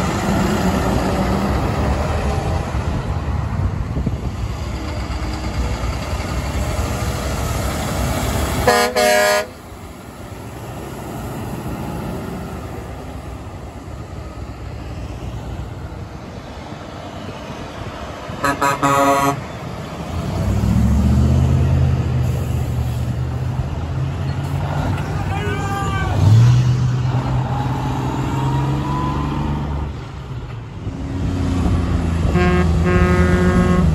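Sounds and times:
truck air horn blasts: 8.6 - 9.6, 18.4 - 19.5, 32.3 - 33.9
truck air horn short toots: 8.7 - 9.5, 18.4 - 19.4, 32.3 - 33.9
deep diesel engine drone: 28.8 - 33.9.

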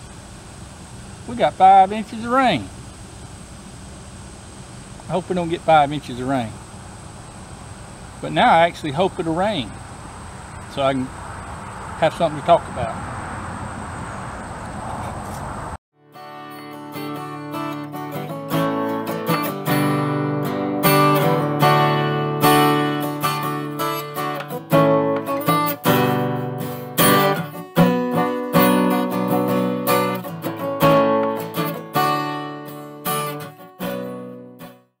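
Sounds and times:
acoustic guitar strumming chords: 16.0 - 34.9.

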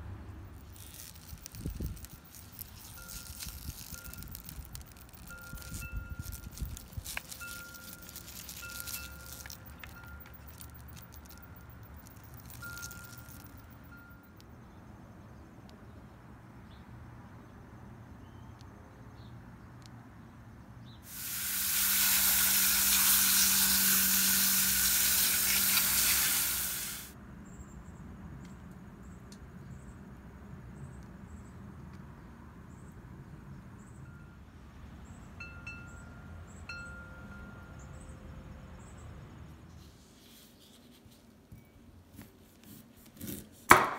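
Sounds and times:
hose nozzle spraying water: 0.6 - 11.4, 21.1 - 27.1.

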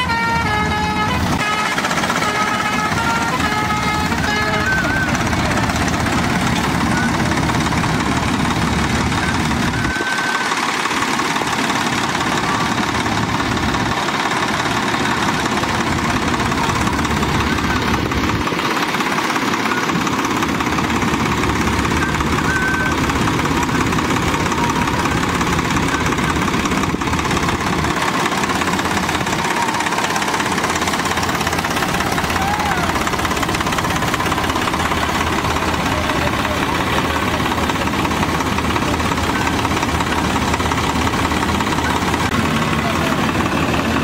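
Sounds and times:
tractor diesel engine running: 0.0 - 44.0.

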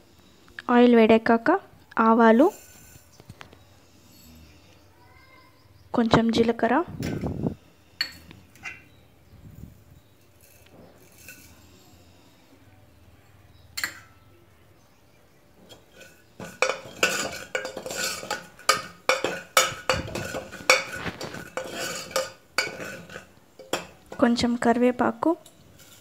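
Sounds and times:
ladle clinking and scraping metal pot: 2.3 - 3.2, 8.0 - 9.0, 10.0 - 12.0, 13.2 - 14.2, 15.6 - 26.0
seeds sizzling in hot oil: 15.7 - 24.8.

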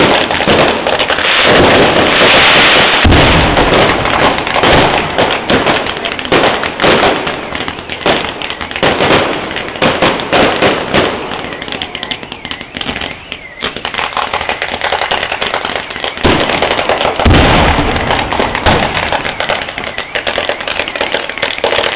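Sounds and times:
fireworks bangs and crackling: 0.0 - 21.9.

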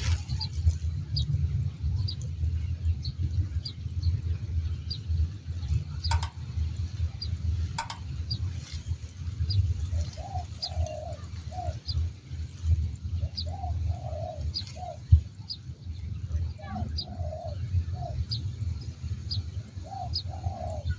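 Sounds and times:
steady low rumble: 0.0 - 20.3
small bird chirping: 5.9 - 8.8
sharp clicks: 6.0 - 6.8, 7.8 - 8.4
doves cooing: 9.9 - 11.8, 13.4 - 15.1, 16.7 - 18.2, 19.9 - 20.9.

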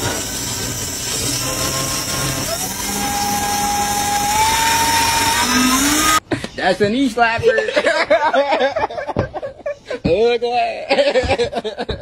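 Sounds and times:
massage gun motor buzzing: 0.0 - 6.2.

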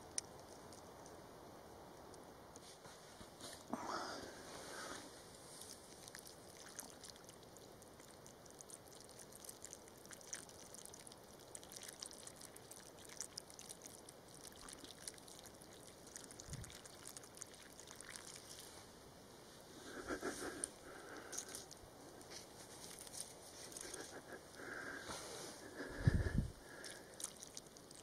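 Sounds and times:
water trickling into hole: 5.6 - 18.9, 20.6 - 22.3, 25.7 - 28.0.

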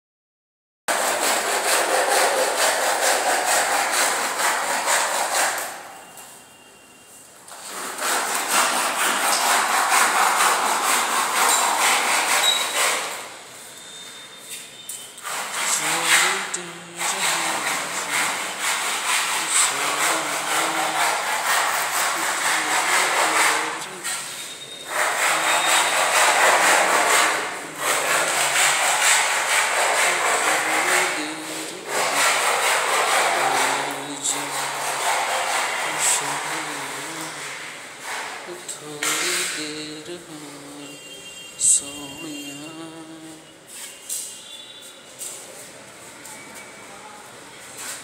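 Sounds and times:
scraping floor by hand: 0.9 - 5.8, 7.5 - 13.3, 15.2 - 40.7.

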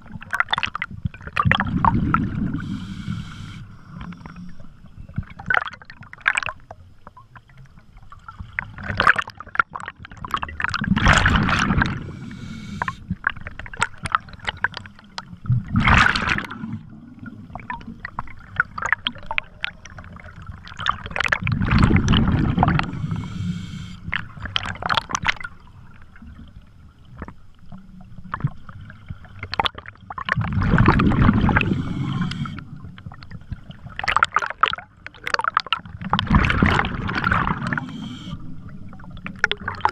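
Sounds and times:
crackle of rising bubbles: 0.0 - 2.9, 4.0 - 23.4, 24.1 - 39.9
scuba regulator bubbling exhalations: 1.4 - 4.1, 10.2 - 14.6, 21.0 - 25.2, 30.4 - 32.9, 35.3 - 39.9.

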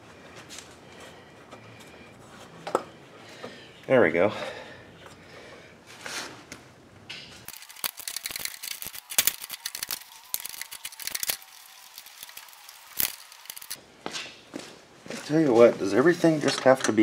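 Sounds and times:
ratchet wrench clicking: 7.5 - 13.8.

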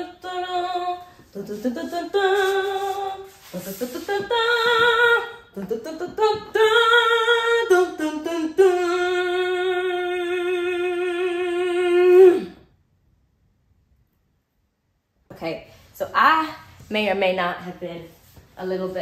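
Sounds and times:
woman singing wordless notes: 0.0 - 12.7.

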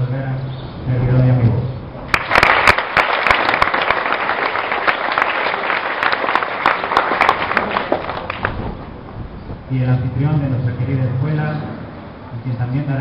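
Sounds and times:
audience applauding: 2.1 - 8.9.

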